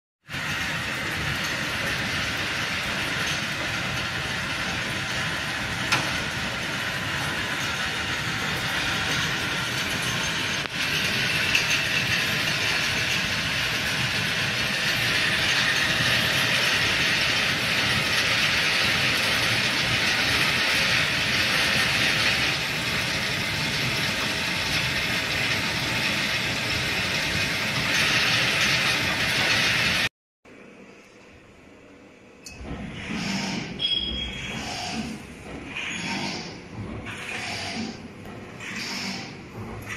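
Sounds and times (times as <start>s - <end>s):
wire winding machine clattering: 0.3s - 30.1s.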